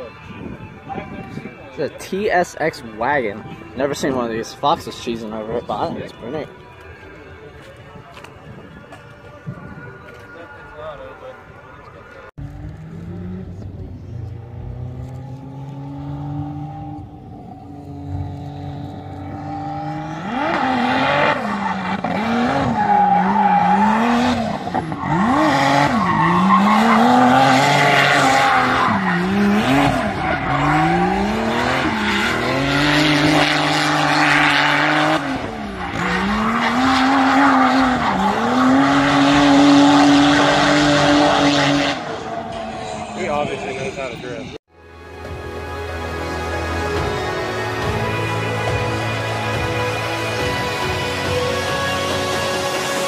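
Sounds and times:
car engine revving: 12.2s - 44.6s.

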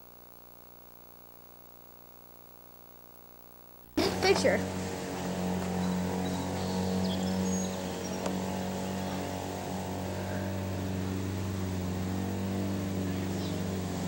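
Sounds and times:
motor drone: 4.0s - 14.0s.

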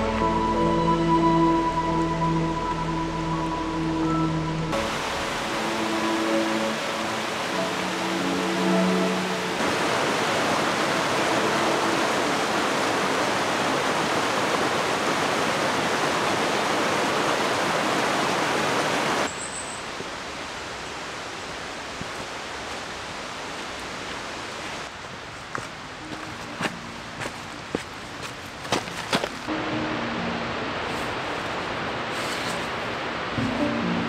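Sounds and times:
mountain stream rushing over rocks: 4.7s - 34.0s.

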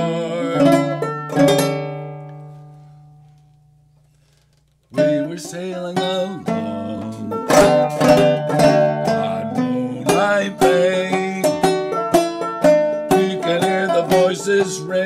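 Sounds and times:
banjo playing: 0.0s - 3.2s, 4.9s - 15.0s.

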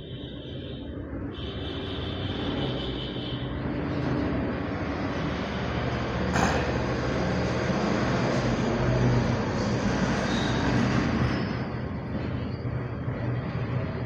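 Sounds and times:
heavy vehicle engine rumble: 3.4s - 14.0s.

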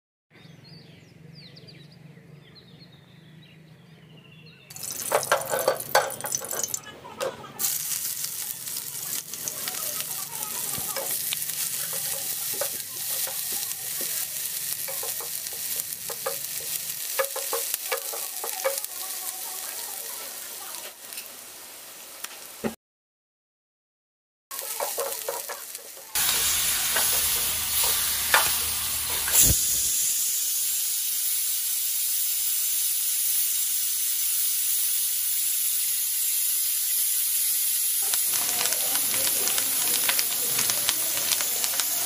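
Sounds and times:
onions sizzling in hot oil: 4.7s - 22.8s, 24.5s - 42.0s
spatula scraping and clicking: 4.8s - 7.4s, 9.1s - 18.9s, 24.5s - 29.4s.

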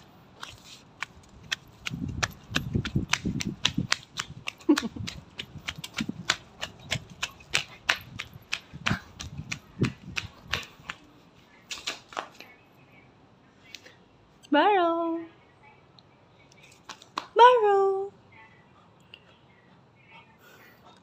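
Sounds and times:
running footsteps on concrete: 0.4s - 12.4s.

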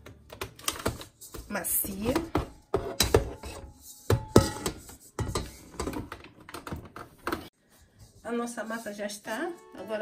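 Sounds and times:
steel mixer bowl knocks and clunks: 0.8s - 7.4s.

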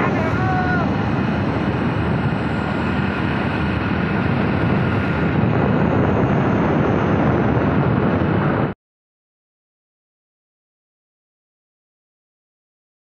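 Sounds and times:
engine drone: 0.0s - 8.8s
wind buffeting microphone: 0.0s - 8.8s.

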